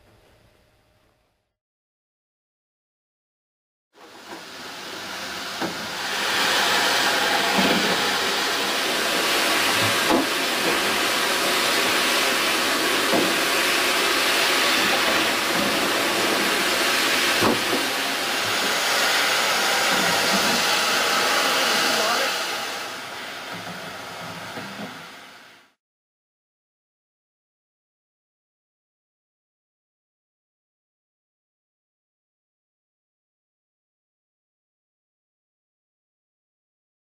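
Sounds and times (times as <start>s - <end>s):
water jets spraying: 5.4s - 23.2s.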